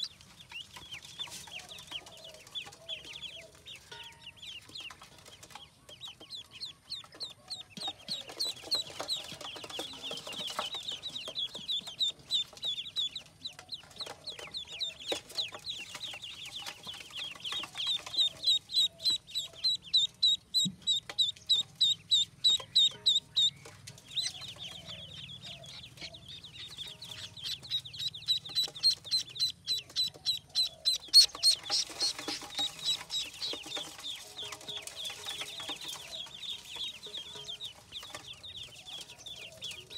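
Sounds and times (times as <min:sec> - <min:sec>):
ducklings peeping: 0:00.0 - 0:39.9.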